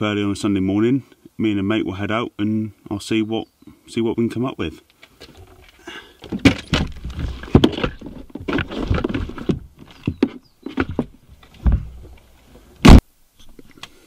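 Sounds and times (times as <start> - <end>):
kayaks knocking and rattling: 5.2 - 12.3
heavy thump: 6.3 - 9.6, 11.6 - 12.1.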